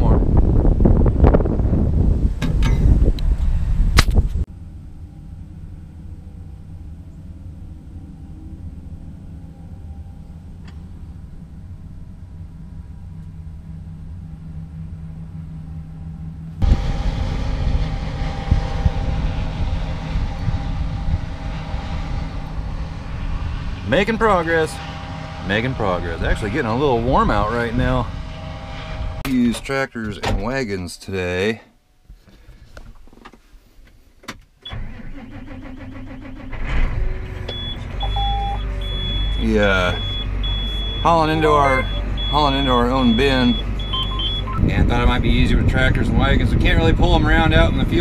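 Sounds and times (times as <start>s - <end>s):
wind noise: 0.0s - 4.5s, 16.6s - 29.4s, 43.4s - 48.0s
truck diesel engine running: 0.2s - 29.5s, 34.7s - 48.0s
short high beeps: 37.5s - 44.6s.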